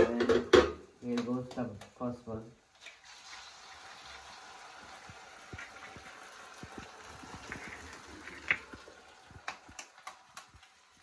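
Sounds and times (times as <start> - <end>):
food sizzling in hot oil: 2.7 - 11.0.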